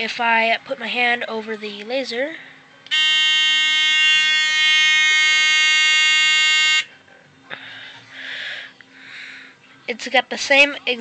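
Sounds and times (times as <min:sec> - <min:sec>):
high-pitched alarm buzzer tone: 0:02.9 - 0:06.9.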